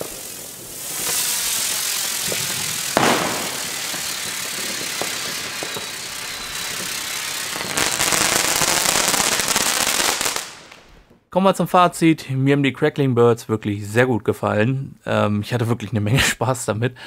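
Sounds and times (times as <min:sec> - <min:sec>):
firework hissing: 0:00.0 - 0:10.9
firework sharp bang: 0:00.0 - 0:11.1
firework loud crackle: 0:00.0 - 0:11.2.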